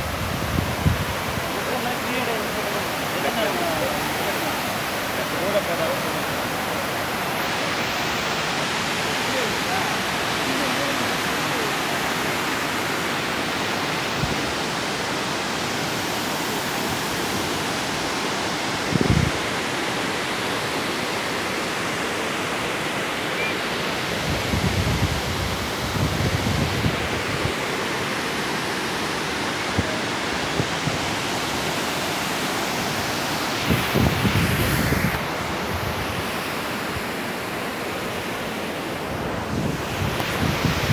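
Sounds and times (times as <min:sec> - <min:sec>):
wind buffeting microphone: 0:00.0 - 0:01.6, 0:18.9 - 0:19.4, 0:24.2 - 0:27.6, 0:33.6 - 0:36.3, 0:39.1 - 0:40.9
water rushing over weir: 0:00.0 - 0:40.9.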